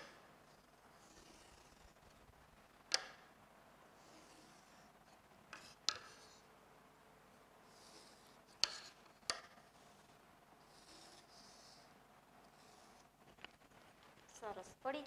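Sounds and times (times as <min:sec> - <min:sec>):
marker stroke on whiteboard: 0:00.9 - 0:02.0, 0:04.0 - 0:04.9, 0:05.5 - 0:06.5, 0:07.6 - 0:11.9, 0:12.5 - 0:13.1
ruler tapping on whiteboard: 0:02.9 - 0:03.3, 0:05.5 - 0:06.4, 0:07.9 - 0:09.6.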